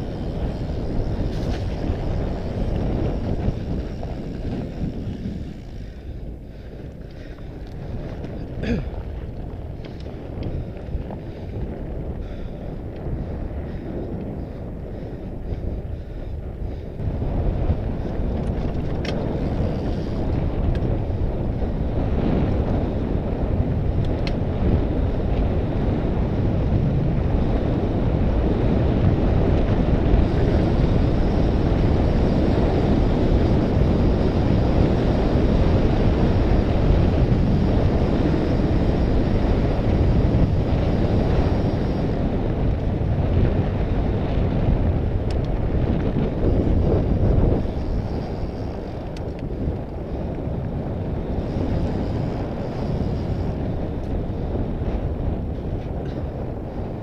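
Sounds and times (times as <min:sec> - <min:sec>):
tyres rolling on gravel: 0:00.0 - 0:14.5
wind buffeting microphone: 0:00.0 - 0:57.0
faint clicks: 0:09.3 - 0:10.9, 0:45.2 - 0:46.2, 0:48.6 - 0:50.4.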